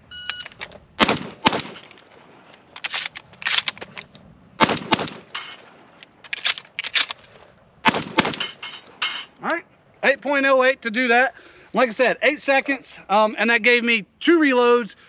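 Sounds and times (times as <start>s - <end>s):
shotgun firing: 1.0s - 2.2s, 4.6s - 5.9s, 7.8s - 8.6s
shells loading clicks: 1.4s - 7.4s.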